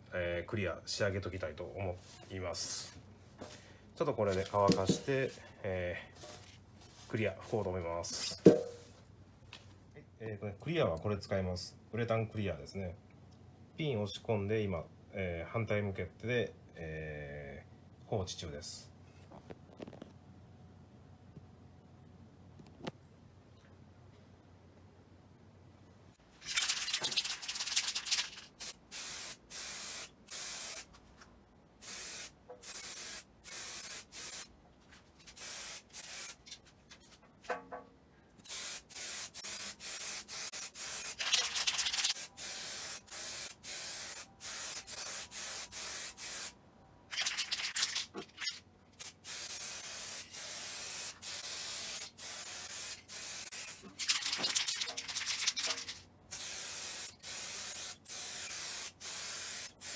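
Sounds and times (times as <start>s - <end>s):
aerosol can spraying hiss: 28.6s - 30.9s, 31.8s - 34.5s, 35.4s - 36.4s, 38.5s - 46.5s, 49.0s - 53.8s, 56.3s - 59.9s.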